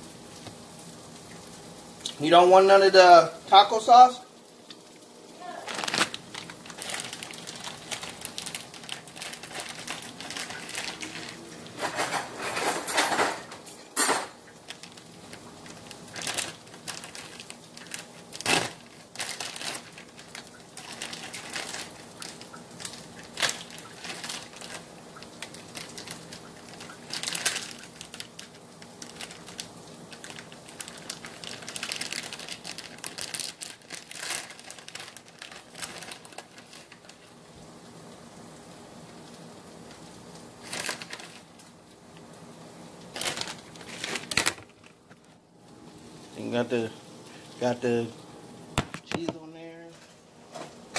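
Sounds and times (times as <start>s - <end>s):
plastic packaging crinkling: 0.4s - 48.2s
dishes and utensils clinking: 11.1s - 14.4s.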